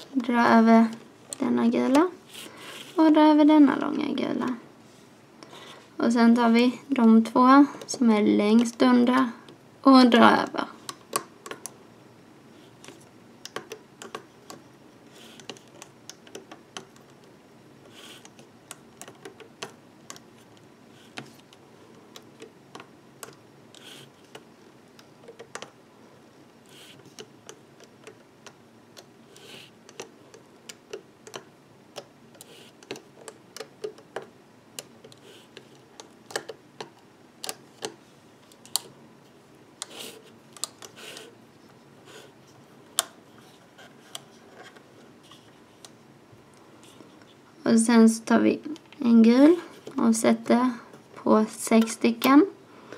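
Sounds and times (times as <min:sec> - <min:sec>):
hook clicking on plastic pegs: 0:26.9 - 0:38.9.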